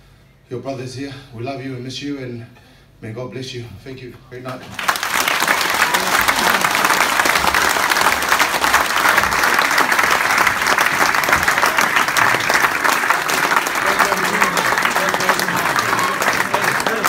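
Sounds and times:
crowd clapping: 4.5 - 17.0
crowd cheering: 4.8 - 17.0.

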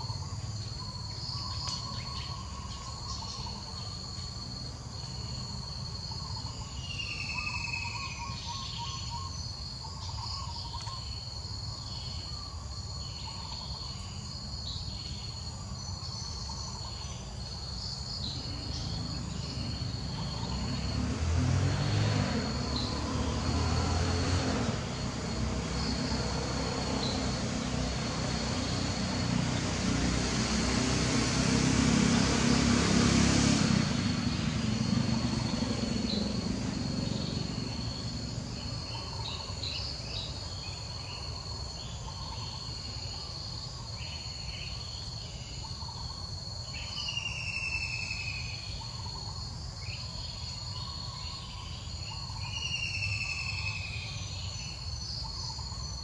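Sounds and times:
bird chirps: 0.0 - 4.3, 5.0 - 21.0, 44.0 - 56.0
high insect trill: 0.0 - 56.0.

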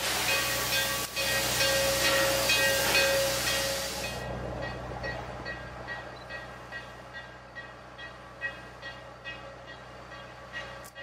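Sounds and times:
loud hiss: 0.0 - 4.2
locomotive bell ringing: 0.0 - 11.0.

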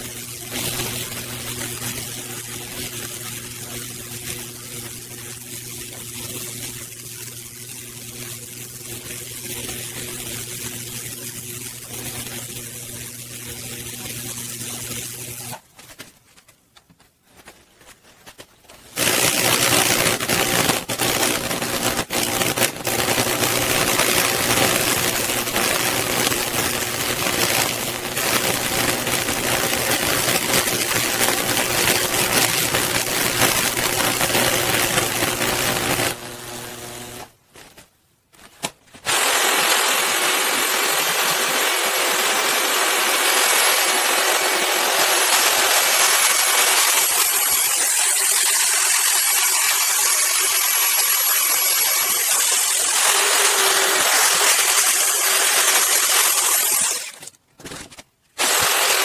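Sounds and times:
electrical hum: 0.0 - 40.2
electrical arcing crackle: 0.0 - 59.0.

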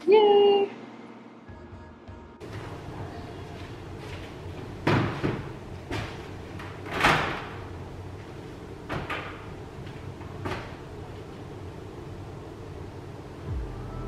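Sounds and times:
appliance doors clunking shut: 4.8 - 7.7.

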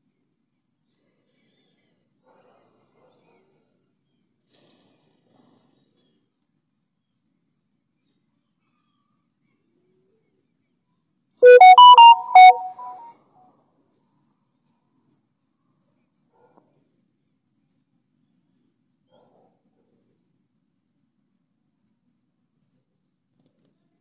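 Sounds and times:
electronic jingle: 11.4 - 13.1.

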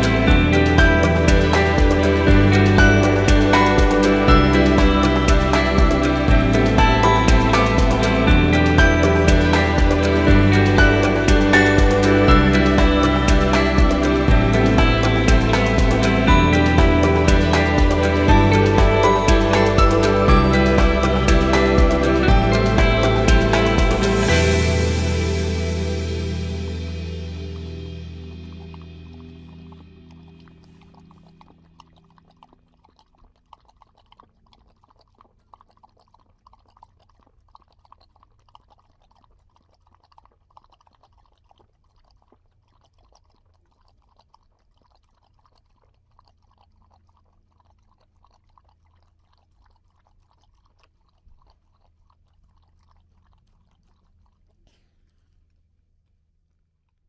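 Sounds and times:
low steady hum: 0.0 - 37.1
dog lapping water: 0.0 - 55.7.

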